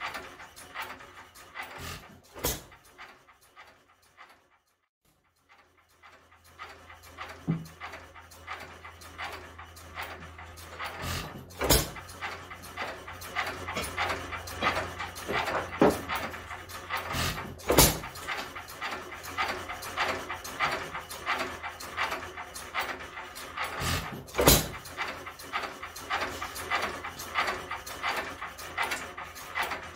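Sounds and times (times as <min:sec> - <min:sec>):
hit-and-miss engine puffing and clicking: 0:00.0 - 0:29.9.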